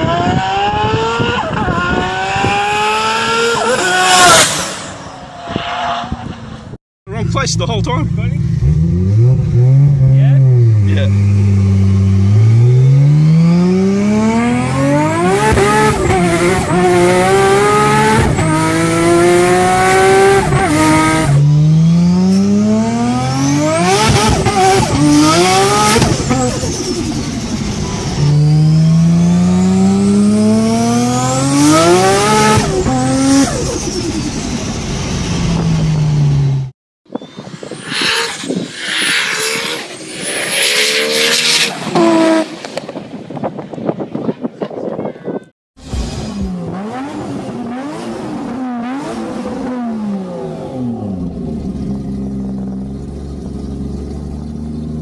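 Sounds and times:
distant car engine: 0.0 - 43.2
car engine accelerating hard: 7.4 - 36.7, 37.7 - 42.6.

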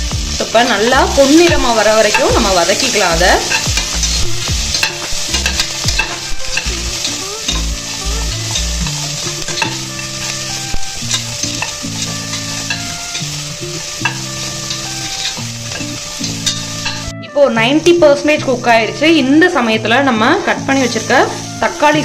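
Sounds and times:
onions sizzling in oil: 0.0 - 22.0
metal spatula scraping pot: 0.7 - 17.1.

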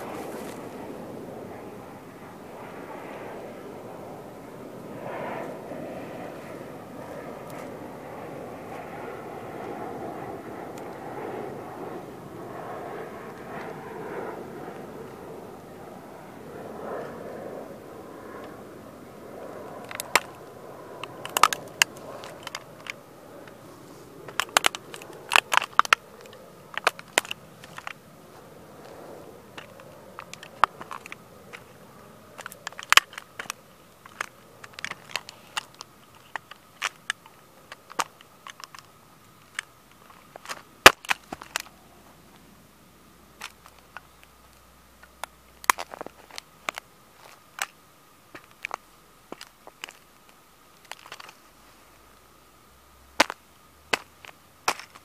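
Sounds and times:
toy car cracking underfoot: 19.7 - 41.8, 43.4 - 44.0, 45.1 - 51.4, 53.2 - 55.0.

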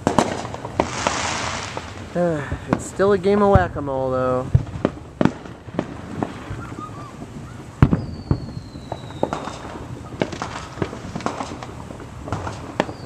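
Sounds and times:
distant fireworks bangs: 0.0 - 13.0
falling whistle: 6.5 - 9.5.

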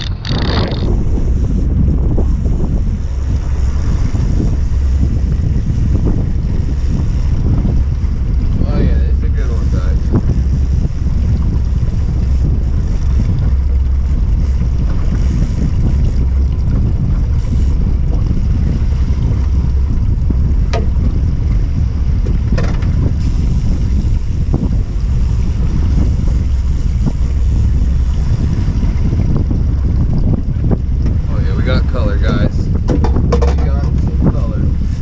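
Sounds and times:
wind buffeting microphone: 0.0 - 35.0.

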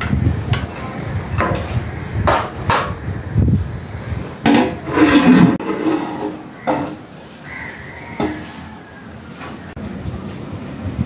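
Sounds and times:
metal lid clattering: 4.4 - 7.1, 8.2 - 8.5.

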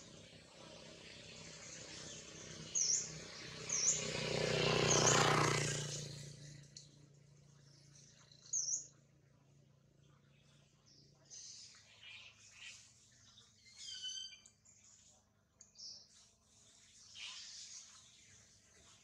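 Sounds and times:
high bird chirps: 12.0 - 14.7.

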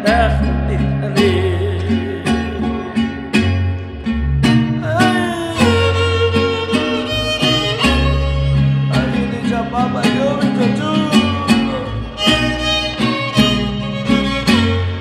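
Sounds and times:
bass line: 0.0 - 15.0
guitar strumming: 0.0 - 15.0
violin melody: 5.3 - 9.4, 11.1 - 15.0.

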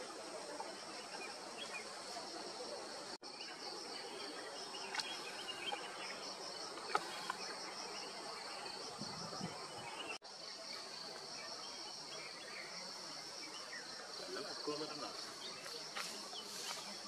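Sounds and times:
insect chorus: 0.0 - 17.0.

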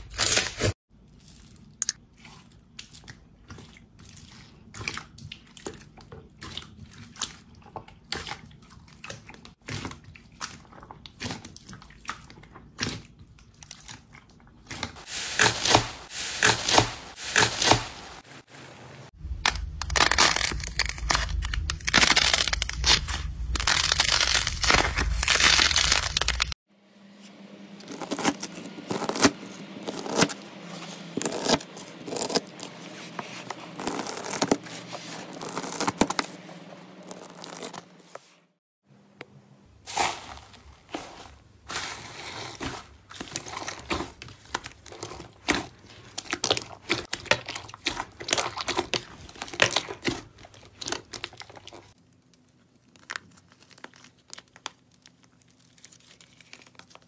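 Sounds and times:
clay crust cracking: 19.2 - 26.6
crunchy slime crackling: 19.2 - 26.6, 27.8 - 38.0, 39.9 - 57.0.

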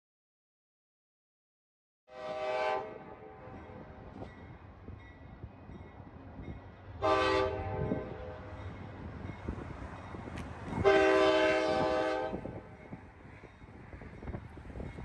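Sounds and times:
locomotive air horn: 2.1 - 3.6, 7.0 - 8.4, 10.8 - 12.6.

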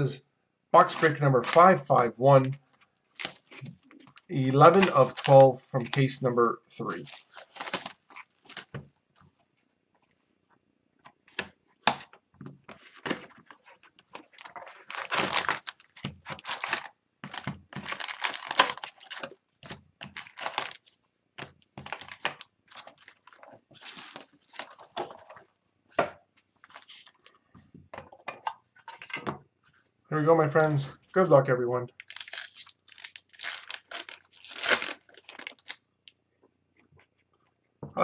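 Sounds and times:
wrappers crinkling and rustling: 2.8 - 8.8, 12.7 - 21.0, 21.8 - 25.6, 32.0 - 35.8.

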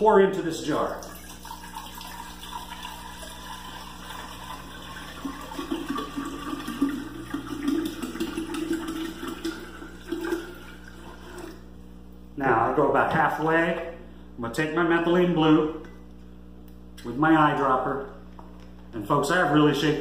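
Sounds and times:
water pouring into a glass jar: 0.9 - 11.6.

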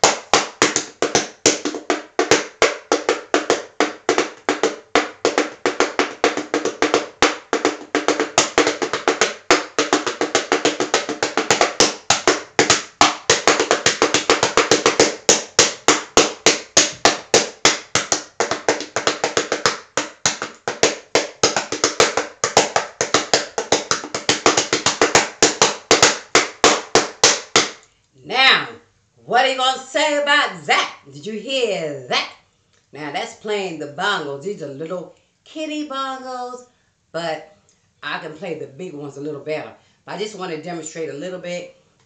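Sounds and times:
toy bongos played by hand: 0.0 - 27.8.

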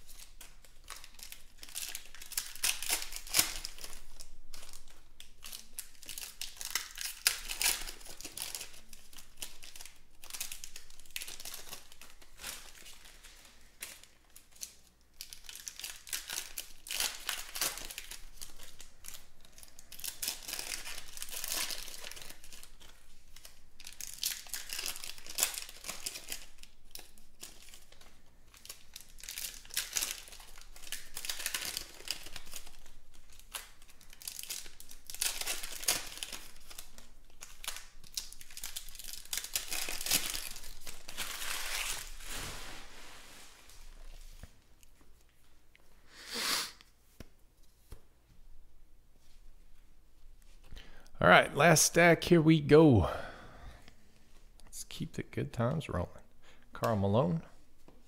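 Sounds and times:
foil packs crinkling and tearing: 0.0 - 44.3.

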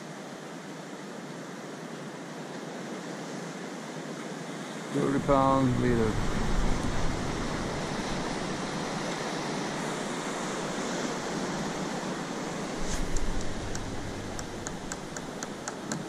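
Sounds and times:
ocean surf breaking: 4.6 - 16.0
faint clicks: 13.1 - 16.0.

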